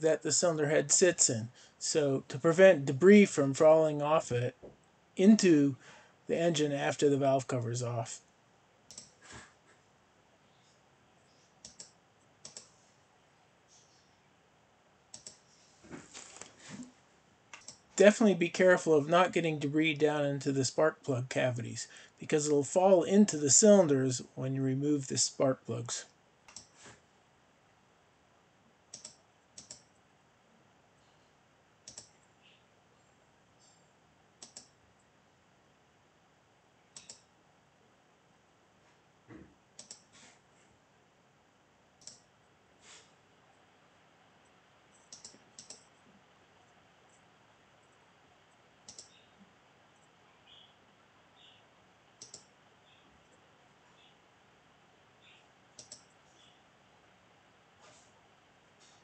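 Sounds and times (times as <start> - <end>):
faint computer clicks: 8.9 - 9.2, 11.3 - 12.8, 15.1 - 15.4, 17.5 - 17.9, 26.4 - 26.8, 28.9 - 30.0, 31.8 - 32.3, 34.4 - 34.8, 36.9 - 37.3, 39.8 - 40.1, 42.0 - 42.3, 44.9 - 46.0, 48.8 - 50.7, 52.2 - 53.4, 55.2 - 56.6.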